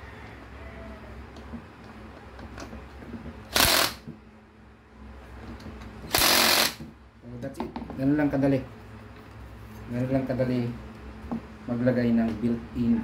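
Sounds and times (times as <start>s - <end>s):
cordless drill bursts: 3.5s - 4.0s, 6.1s - 6.8s.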